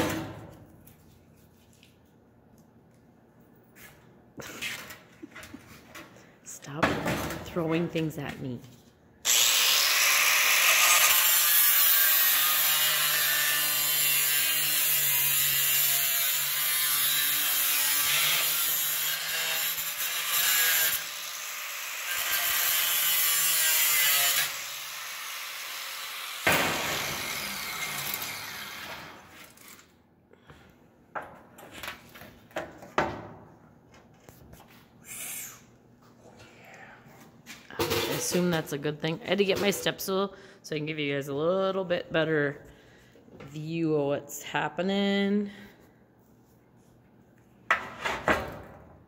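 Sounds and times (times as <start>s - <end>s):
angle grinder cutting sheet steel: 9.2s - 29.7s.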